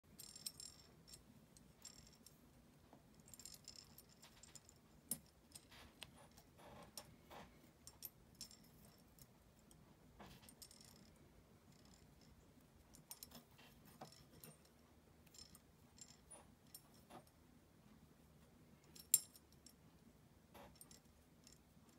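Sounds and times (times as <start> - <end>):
wire clicking on metal pegs: 0.1 - 2.4, 3.1 - 17.4, 18.8 - 19.8, 20.5 - 21.9.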